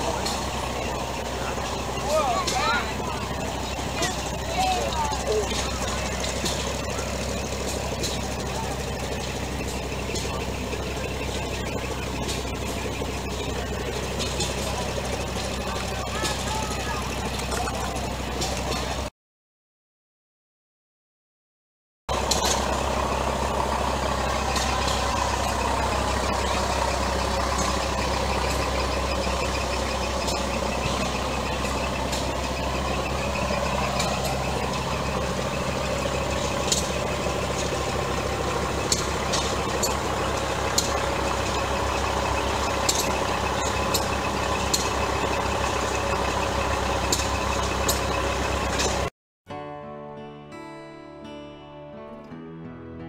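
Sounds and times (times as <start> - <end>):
truck engine idling: 0.0 - 19.1, 22.1 - 49.1.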